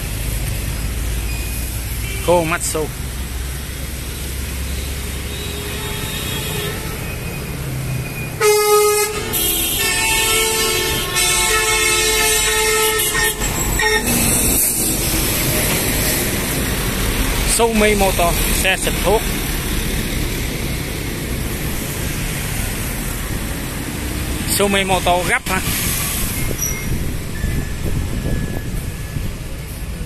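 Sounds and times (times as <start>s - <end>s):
low traffic rumble: 0.0s - 30.0s
loud vehicle horn: 2.0s - 2.5s, 5.2s - 7.4s, 8.4s - 14.7s
rushing noise: 9.0s - 30.0s.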